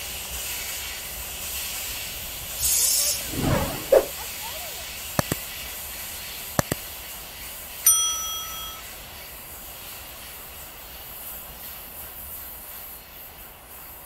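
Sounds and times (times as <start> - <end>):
bright bell ding: 7.9 - 8.8.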